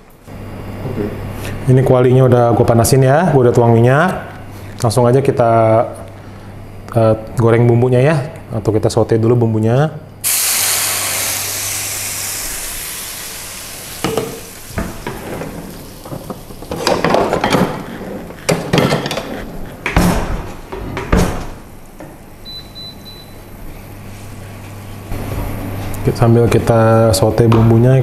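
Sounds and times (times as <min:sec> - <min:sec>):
paste sizzling in hot oil: 0:10.2 - 0:16.7
utensils knocking on pan: 0:14.0 - 0:17.8.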